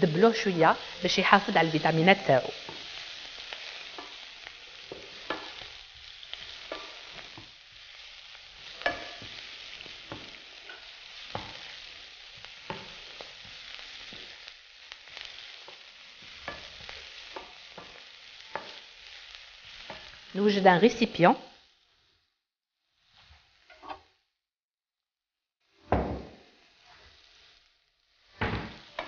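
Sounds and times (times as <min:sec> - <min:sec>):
vegetables sizzling in a frying pan: 0:00.0 - 0:24.3, 0:25.6 - 0:29.0
wooden spoon tapping and scraping pan: 0:03.8 - 0:04.2, 0:04.8 - 0:05.7, 0:06.4 - 0:07.6, 0:08.7 - 0:11.7, 0:12.4 - 0:14.4, 0:15.6 - 0:18.8, 0:19.8 - 0:20.2.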